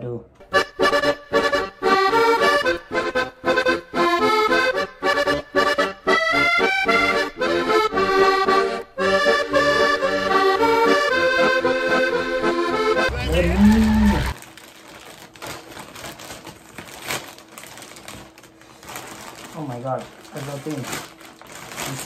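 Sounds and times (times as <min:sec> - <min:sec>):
lively instrumental music: 0:00.4 - 0:14.4.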